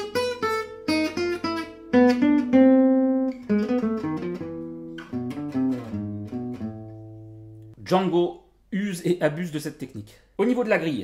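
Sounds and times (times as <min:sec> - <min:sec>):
jazz guitar picked notes: 0:00.0 - 0:07.8.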